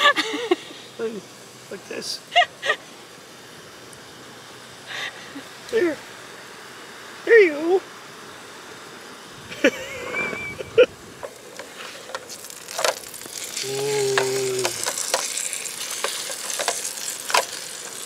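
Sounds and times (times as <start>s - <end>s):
dough sizzling in hot oil: 11.3s - 18.0s.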